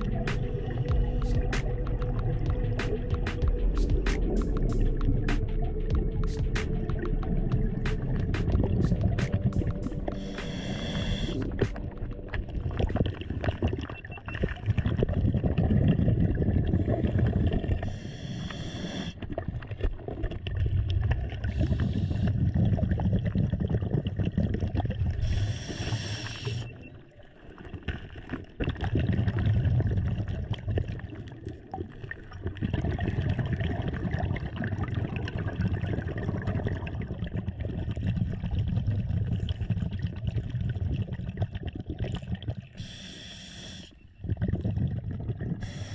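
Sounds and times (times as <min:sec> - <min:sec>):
exhaled air bubbling: 0:00.0 - 0:45.9
diver inhaling through regulator: 0:10.0 - 0:11.6, 0:16.8 - 0:19.2, 0:21.4 - 0:22.6, 0:25.2 - 0:26.8, 0:42.8 - 0:44.9, 0:45.5 - 0:45.9.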